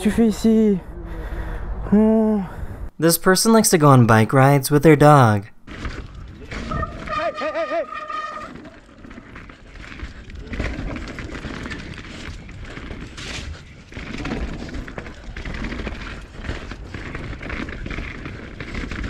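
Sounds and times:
bike rattling: 0:05.6 - 0:19.0
wind on microphone: 0:05.7 - 0:18.6.

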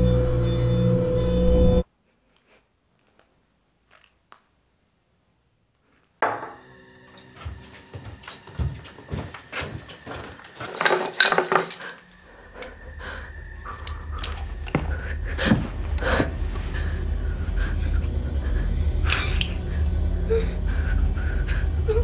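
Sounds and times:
steady low rumble: 0:12.3 - 0:22.0.

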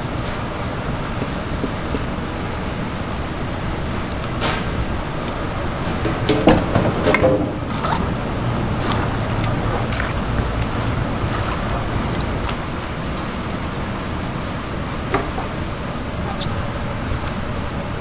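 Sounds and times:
wet squelching of hand-mixed greens: 0:00.0 - 0:05.8, 0:07.6 - 0:15.6.

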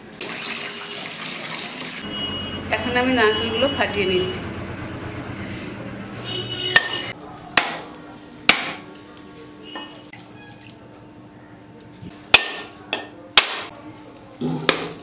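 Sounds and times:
coconuts cracked with hard knocks: 0:07.6 - 0:07.9, 0:08.5 - 0:08.8, 0:12.3 - 0:12.8, 0:13.4 - 0:13.7, 0:14.4 - 0:15.0.

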